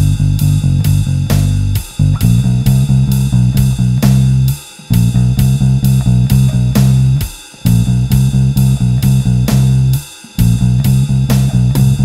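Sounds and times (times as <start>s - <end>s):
drum track: 0.0s - 12.0s
plucked electric bass line: 0.0s - 12.0s
cymbal hits: 1.3s - 12.0s.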